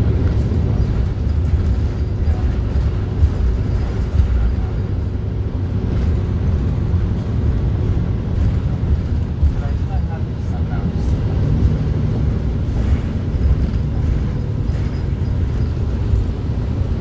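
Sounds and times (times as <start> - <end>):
bus engine rumble: 0.0 - 17.0.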